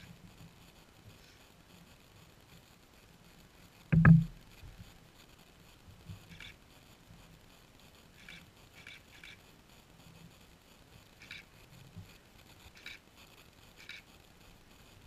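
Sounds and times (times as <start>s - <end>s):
loud low thump: 4.0s - 4.4s.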